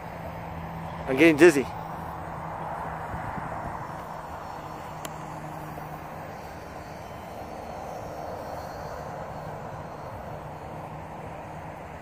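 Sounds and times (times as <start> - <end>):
model airplane propeller drone: 0.0 - 12.0.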